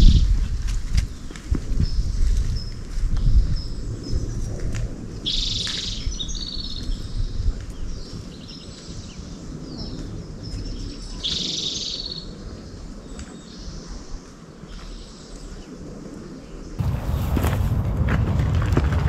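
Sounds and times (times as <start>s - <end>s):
bird singing: 5.2s - 14.1s
low rumbling noise: 16.8s - 19.0s.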